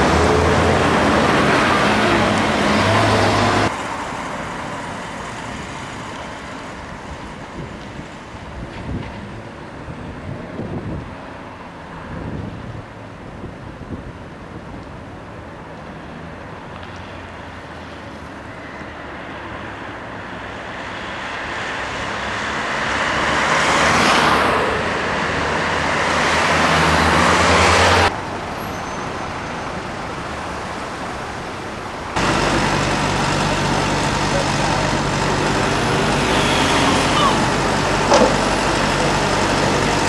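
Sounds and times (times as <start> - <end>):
trolleybus pulling up: 0.0 - 9.5, 26.4 - 40.0
street traffic hum: 0.0 - 40.0.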